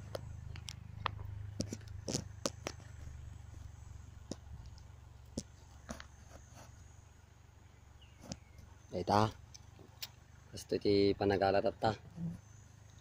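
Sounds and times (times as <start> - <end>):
sharp clicks and snaps: 0.0 - 3.1
low steady rumble: 0.0 - 13.0.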